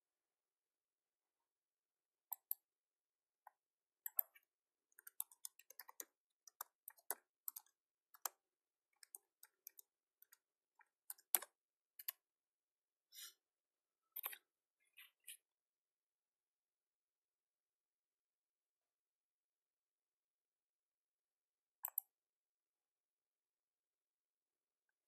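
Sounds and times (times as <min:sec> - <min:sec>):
computer keyboard typing: 0:04.0 - 0:04.4, 0:05.0 - 0:08.4, 0:09.0 - 0:12.2.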